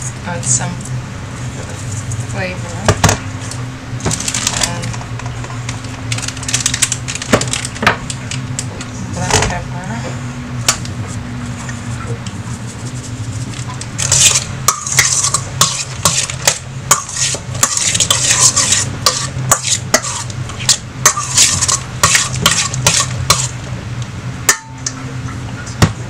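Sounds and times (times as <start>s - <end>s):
utensil scraping a metal bowl: 11.1s - 23.6s.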